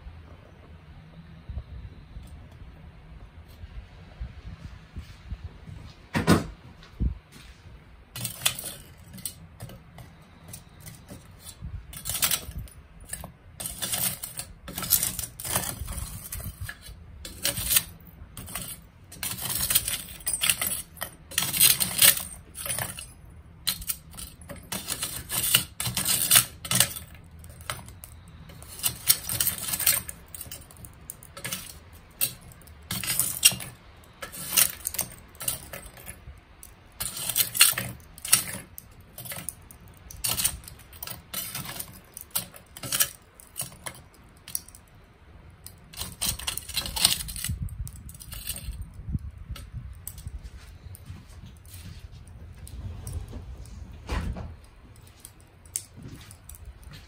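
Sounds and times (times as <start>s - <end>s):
charcoal pieces clinking: 8.1s - 51.0s.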